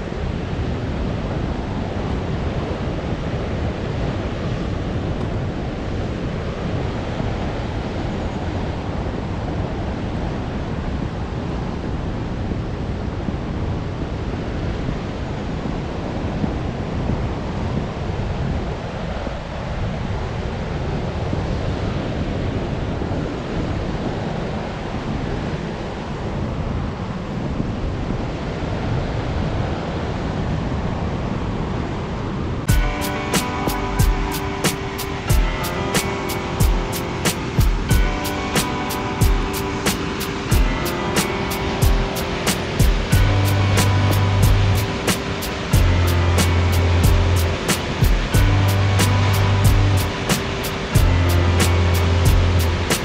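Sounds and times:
outdoor air noise: 0.0s - 53.0s
rushing water: 32.6s - 53.0s.

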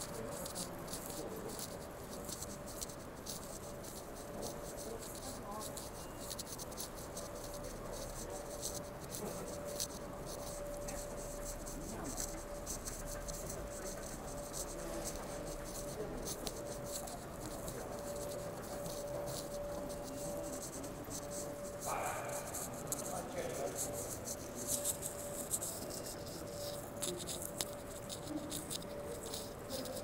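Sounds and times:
steady hum: 0.0s - 30.0s.

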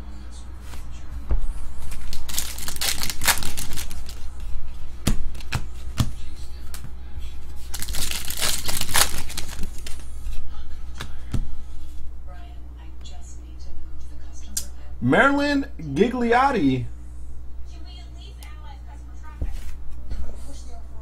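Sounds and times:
foil wrappers crinkling and tearing: 1.9s - 4.4s, 7.6s - 10.1s
cards tapping: 5.0s - 6.9s.

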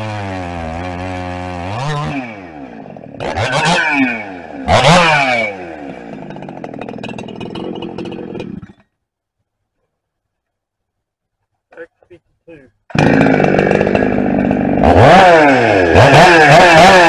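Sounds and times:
chainsaw idling and revving: 0.0s - 8.9s, 12.9s - 17.0s.

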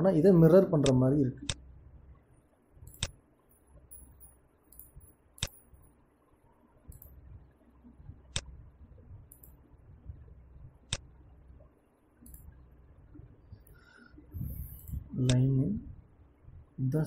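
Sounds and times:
faint low hum: 0.0s - 17.0s
computer mouse clicks: 2.9s - 3.2s.

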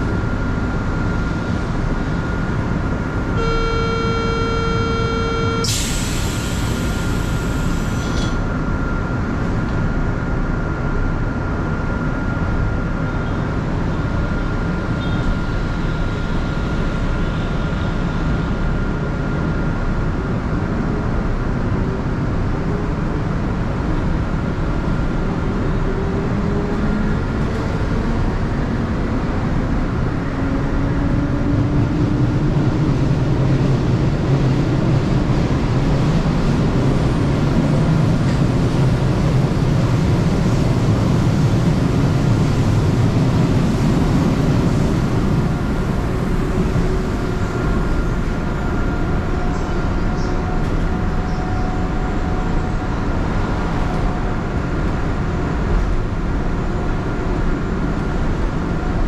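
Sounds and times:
train running rumble: 0.0s - 59.0s
buzzy warning beep: 3.4s - 6.0s
train motor whine rising: 3.4s - 8.4s
pneumatic door air hiss: 5.6s - 8.4s.

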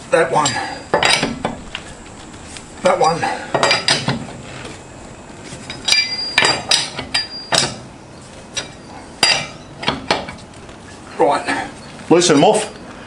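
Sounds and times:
wrench clinking on wheel nuts: 5.7s - 7.8s.

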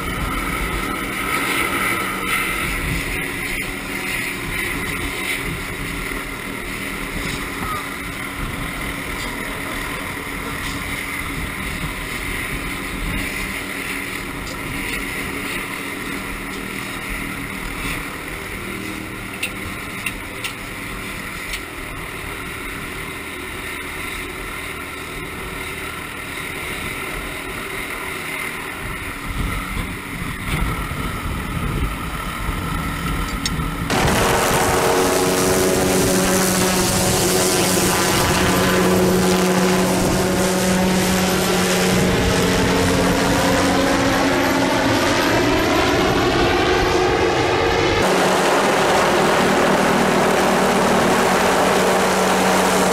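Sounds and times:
wind rushing over microphone: 0.0s - 16.4s, 28.8s - 52.9s
engine drone: 0.0s - 52.9s
helicopter drone: 0.0s - 52.9s.

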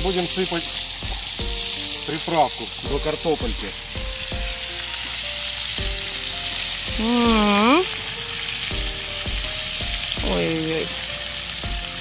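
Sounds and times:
food sizzling in oil: 0.0s - 12.0s
person humming a note: 7.0s - 8.0s.

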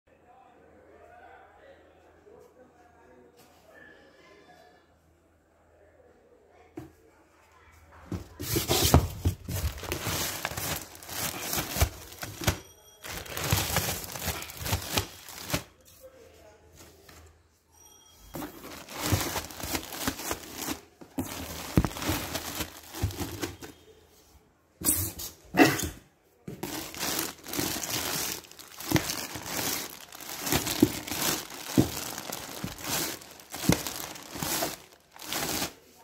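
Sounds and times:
plastic bags crinkling: 8.4s - 15.8s, 18.3s - 23.7s, 26.5s - 36.0s.

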